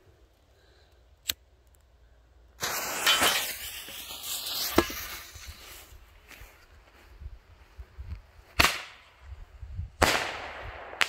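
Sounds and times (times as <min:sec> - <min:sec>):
firework bang: 0:02.6 - 0:05.3
firework hissing and crackling: 0:02.6 - 0:06.2.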